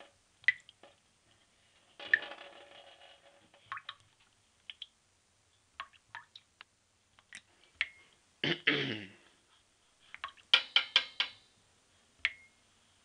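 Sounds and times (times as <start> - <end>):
water drops dripping and plopping: 0.4 - 0.8, 3.7 - 4.0, 4.7 - 4.9, 5.8 - 6.5, 10.2 - 11.2.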